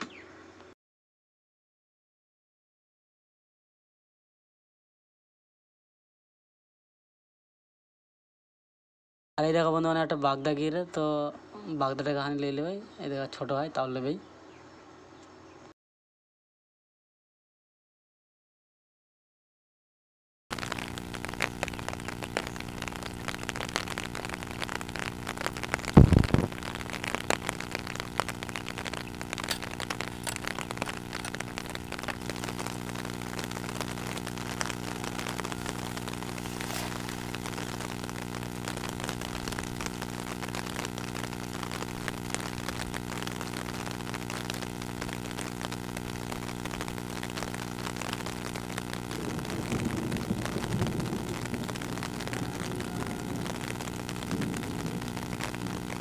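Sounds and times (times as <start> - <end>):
loud low thump: 26.0 - 26.5
motor engine droning: 49.1 - 56.0.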